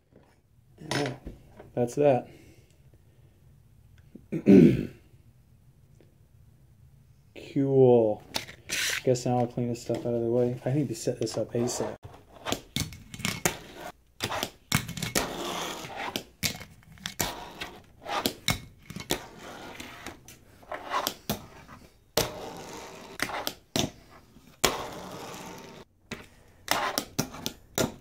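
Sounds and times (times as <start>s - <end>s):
fingerboard wheels rolling: 11.4s - 28.0s.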